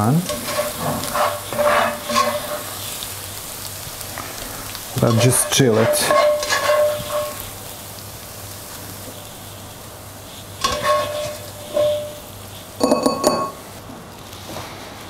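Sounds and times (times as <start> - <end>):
frying pan sizzling: 0.0 - 15.0
metal clinking against pan: 5.1 - 7.4, 10.6 - 12.2, 12.8 - 13.6.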